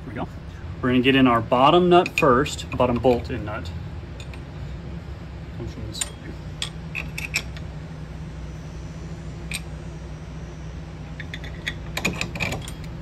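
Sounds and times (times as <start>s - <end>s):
steady low hum: 0.0s - 13.0s
metal bolt clicks and clinks: 6.0s - 7.6s, 11.2s - 13.0s.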